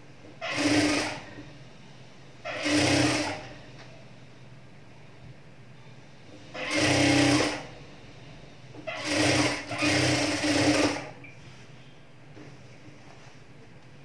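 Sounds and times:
sewing machine stitching: 0.4 - 1.4, 2.5 - 3.5, 6.5 - 7.7, 8.9 - 11.2.

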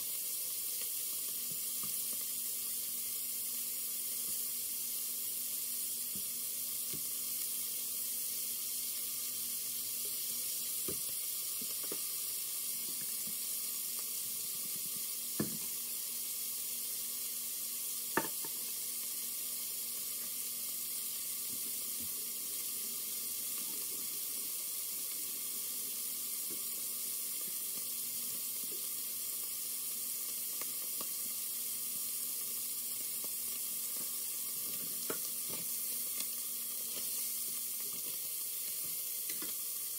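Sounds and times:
meat sizzling in hot fat: 0.0 - 39.9.

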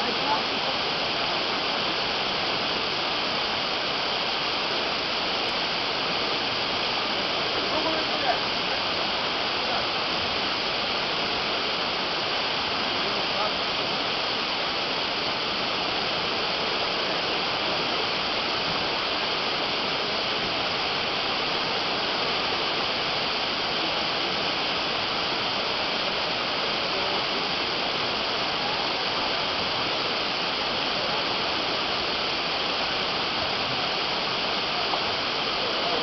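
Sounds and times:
river water rushing: 0.0 - 36.0.

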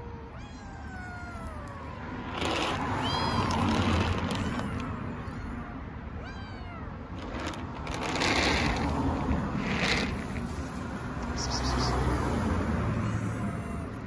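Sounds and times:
kittens meowing: 0.0 - 8.8.

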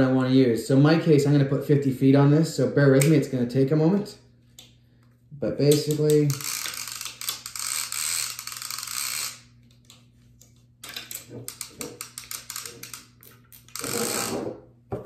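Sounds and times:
fishing reel clicking: 5.7 - 9.4, 10.8 - 14.3
fishing reel rasp: 6.0 - 9.5, 11.4 - 14.4.

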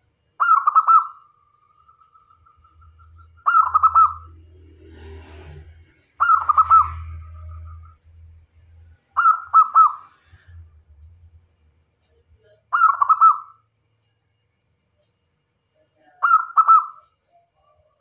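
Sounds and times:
dove cooing: 0.4 - 1.2, 3.2 - 4.5, 6.2 - 7.8, 9.2 - 10.2, 16.2 - 17.0.

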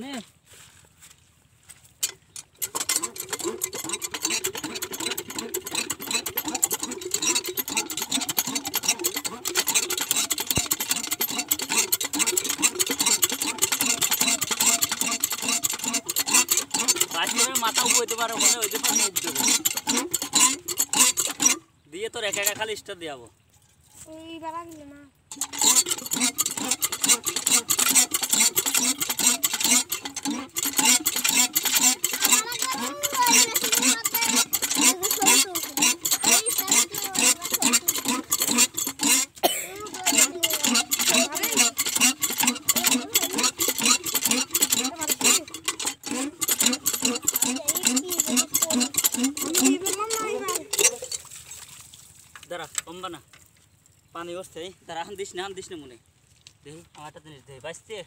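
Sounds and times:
small engine ticking knock: 2.0 - 22.8, 25.3 - 51.3
hand pump handle clanking: 2.0 - 23.0, 25.3 - 53.6
water and air gurgling: 25.3 - 52.4.

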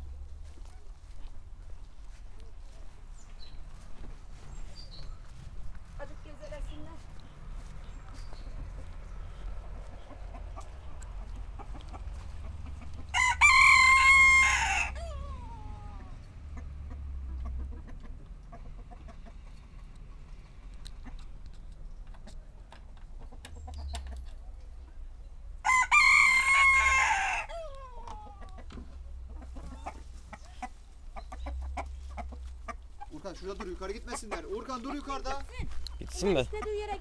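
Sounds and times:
chickens clucking: 0.0 - 25.0, 27.5 - 37.0
rooster crowing: 13.1 - 16.1, 25.6 - 28.4.

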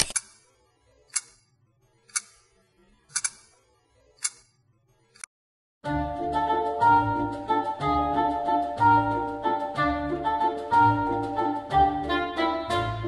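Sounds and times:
clock ticking: 0.0 - 0.5, 1.1 - 1.5, 2.1 - 3.6, 4.2 - 4.5.

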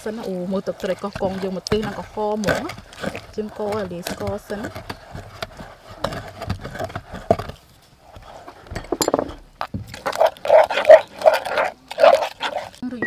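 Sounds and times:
pestle pounding in mortar: 0.0 - 7.6
metal spoon scraping mortar: 0.0 - 12.8.

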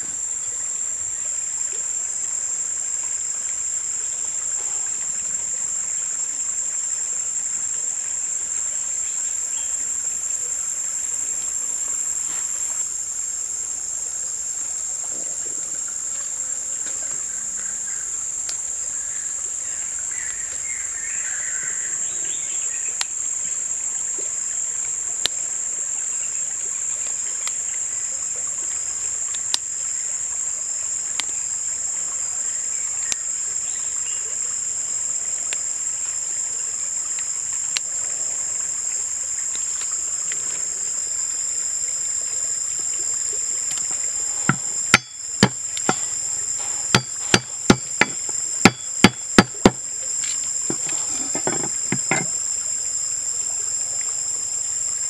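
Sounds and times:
high-pitched insect drone: 39.5 - 55.0
sharp knocks: 44.3 - 49.8, 50.7 - 52.3.

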